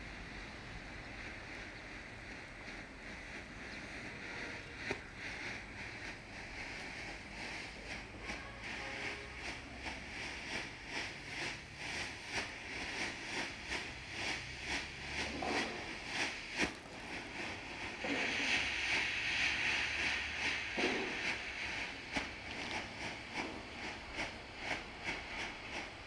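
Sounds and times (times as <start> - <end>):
smoke generator hissing: 0.0 - 26.0
sharp pop: 20.8 - 21.4.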